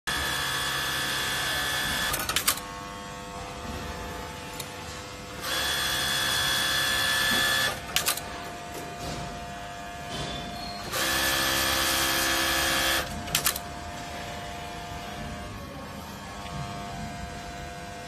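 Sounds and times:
steady machine hum: 0:00.1 - 0:18.0
sewing machine stitching: 0:05.4 - 0:08.2, 0:10.8 - 0:13.6.

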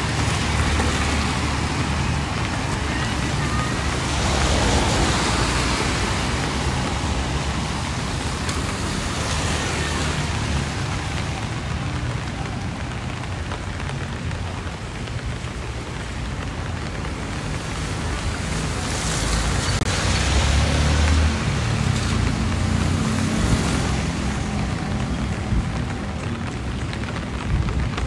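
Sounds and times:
rain hissing: 0:00.0 - 0:28.0
road traffic passing: 0:00.0 - 0:28.0.

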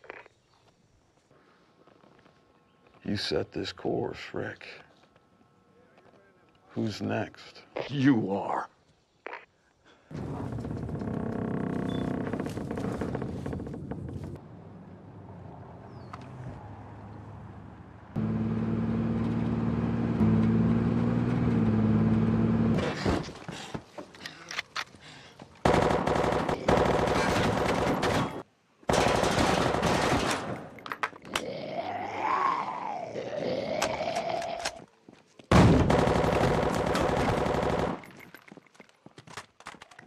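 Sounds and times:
rapid automatic gunfire: 0:25.6 - 0:30.4, 0:35.5 - 0:38.0.

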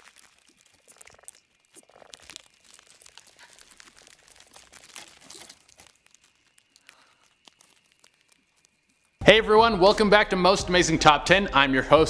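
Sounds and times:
faint irregular clicking and crackling: 0:00.0 - 0:09.2.

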